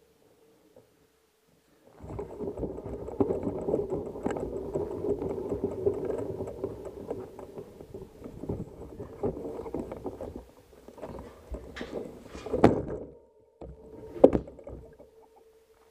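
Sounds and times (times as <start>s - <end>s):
bike tyres rumbling on gravel: 1.9s - 13.1s
bike frame rattling: 1.9s - 15.4s.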